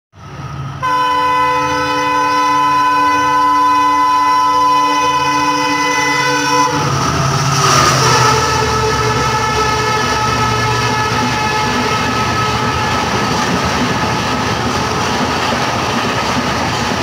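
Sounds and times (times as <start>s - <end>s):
train wheels rushing past on rails: 0.2s - 17.0s
train horn blast: 0.8s - 13.8s.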